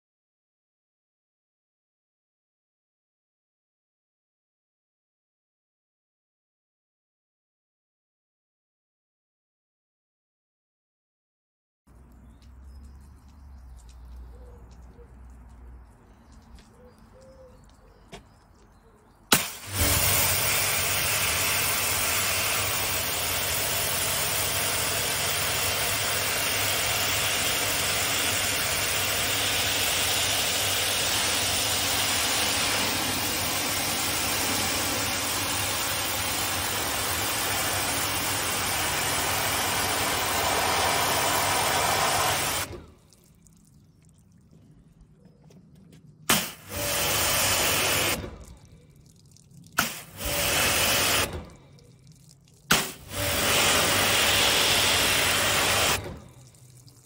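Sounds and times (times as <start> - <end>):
high-pressure water jet hissing: 19.3 - 42.8, 46.3 - 48.3, 49.8 - 51.5, 52.7 - 56.2
pressure washer motor drone: 19.3 - 43.0, 46.3 - 48.7, 49.8 - 51.6, 52.7 - 56.5.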